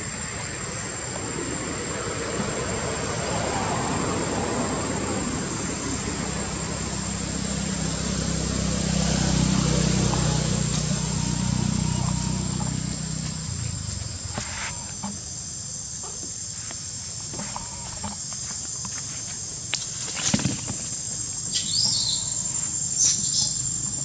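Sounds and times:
insect drone: 0:00.0 - 0:24.0
high chirps: 0:21.5 - 0:24.0.

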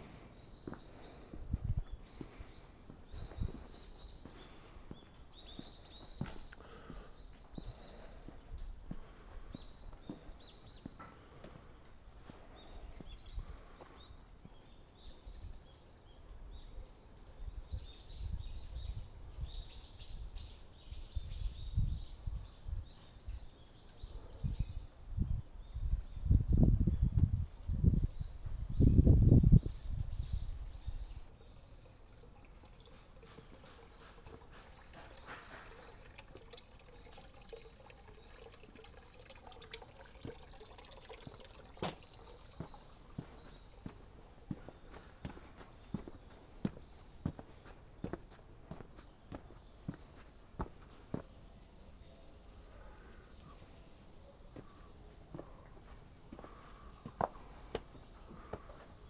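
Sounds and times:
footsteps on stone steps: 0:00.0 - 0:14.6, 0:41.8 - 0:51.5, 0:54.5 - 0:59.0
small birds chirping: 0:00.0 - 0:59.0
water trickling into basin: 0:31.0 - 0:48.8.

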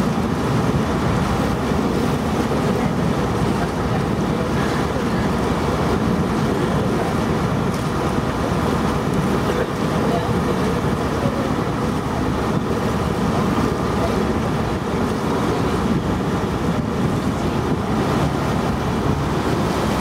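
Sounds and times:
boat engine: 0:00.0 - 0:20.0
water wash: 0:00.0 - 0:20.0
wind on microphone: 0:00.0 - 0:20.0.

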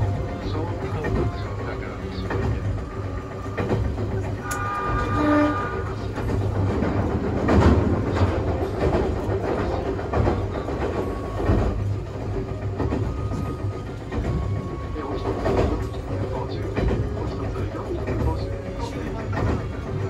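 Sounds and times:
train low rumble: 0:00.0 - 0:20.0
wheels knocking over rail joints: 0:00.0 - 0:20.0.

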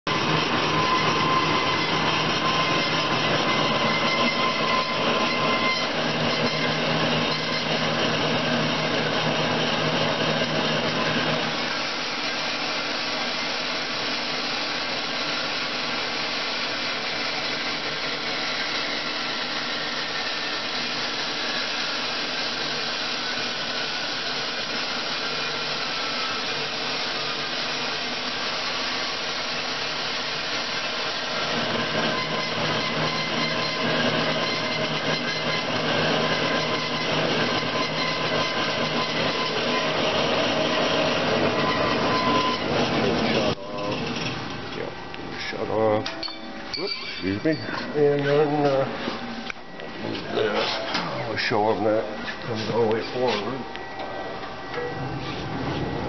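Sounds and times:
bandsaw cutting metal: 0:00.1 - 0:44.6.

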